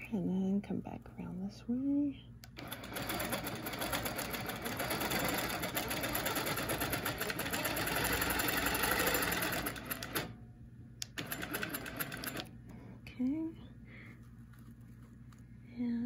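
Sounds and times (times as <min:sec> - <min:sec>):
quilting machine stitching: 0:02.5 - 0:10.4, 0:11.0 - 0:12.5.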